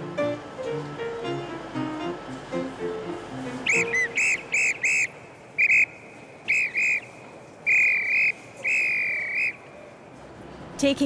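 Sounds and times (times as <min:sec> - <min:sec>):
shrill pea whistle blasts: 0:03.6 - 0:09.7.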